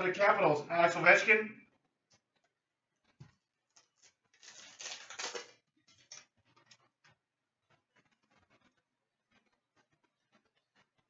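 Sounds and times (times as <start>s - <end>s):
crinkly rustling of card pack: 3.7s - 6.9s.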